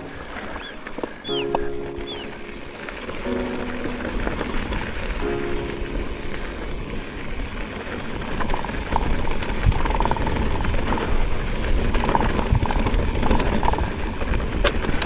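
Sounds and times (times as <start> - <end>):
bike clicks and rattles: 0.0 - 1.5, 7.6 - 15.0
wind and riding rumble: 0.0 - 15.0.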